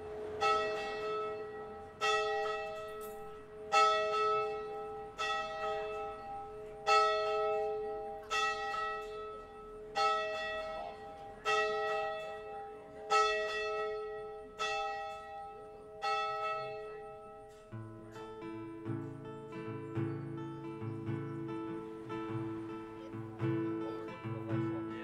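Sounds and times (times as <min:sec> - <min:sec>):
church bell tolling: 0:00.0 - 0:25.0.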